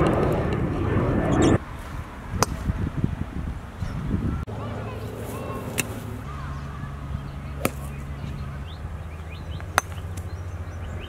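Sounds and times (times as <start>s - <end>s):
steady low hum: 0.0s - 11.0s
golf club striking ball: 2.4s - 2.8s, 7.6s - 8.0s, 9.6s - 10.3s.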